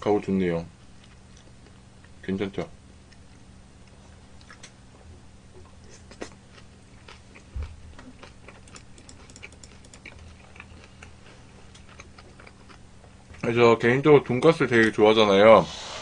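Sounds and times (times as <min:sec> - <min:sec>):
crunchy chewing: 0:01.0 - 0:02.2, 0:05.5 - 0:13.5.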